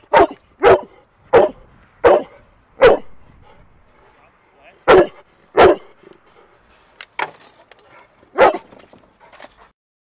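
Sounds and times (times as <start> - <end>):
dog barking: 0.1 - 3.1, 4.8 - 6.0, 8.4 - 8.7.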